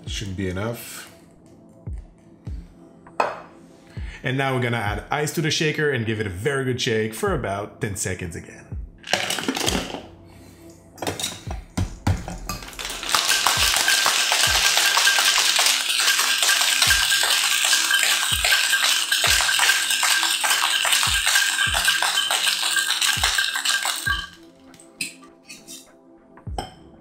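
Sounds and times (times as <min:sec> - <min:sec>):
cocktail shaker rattling with ice: 0:09.1 - 0:09.9, 0:12.5 - 0:24.4
ice and metal clinking: 0:09.1 - 0:10.0, 0:11.0 - 0:11.5, 0:12.2 - 0:25.8.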